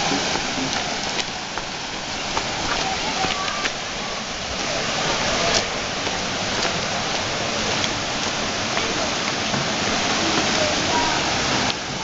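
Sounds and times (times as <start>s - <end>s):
faint voices: 0.0s - 12.0s
water rushing over rocks: 0.0s - 12.0s.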